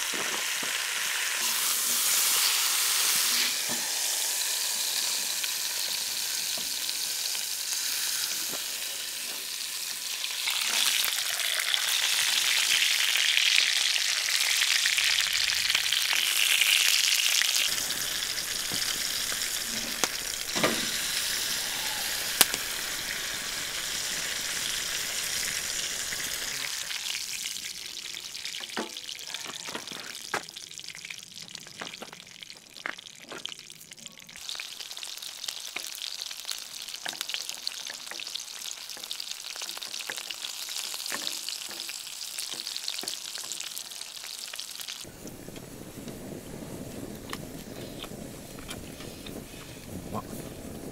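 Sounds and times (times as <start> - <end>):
steak sizzling in skillet: 0.0 - 50.0
sharp fat pops: 22.4 - 22.7.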